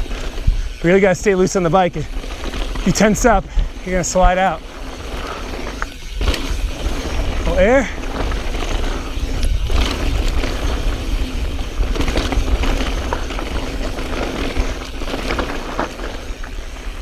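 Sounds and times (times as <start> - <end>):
bike tyres crunching over rock: 0.0 - 17.0
wind rumble on microphone: 0.0 - 17.0
bike clicks and knocks: 4.3 - 17.0.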